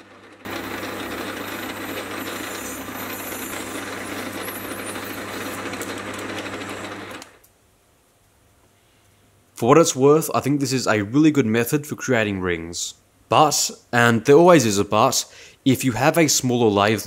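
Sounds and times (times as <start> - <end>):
lathe motor hum: 0.0 - 7.4.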